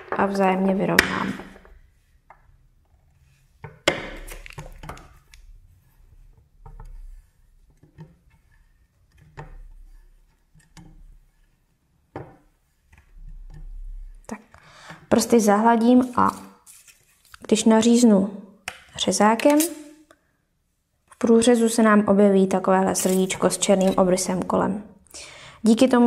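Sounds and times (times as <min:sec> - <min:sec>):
soft handling noises: 0:16.0 - 0:17.5, 0:22.8 - 0:24.4.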